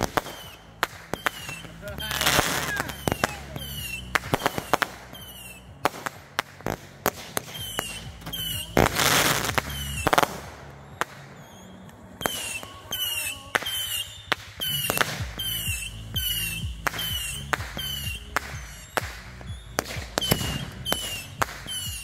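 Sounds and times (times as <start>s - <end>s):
fireworks popping and crackling: 0.0s - 22.0s
loud firework burst: 0.0s - 22.0s.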